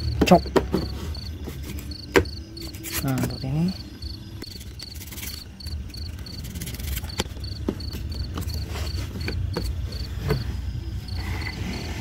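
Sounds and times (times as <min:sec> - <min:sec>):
cricket chirping: 0:00.0 - 0:12.0.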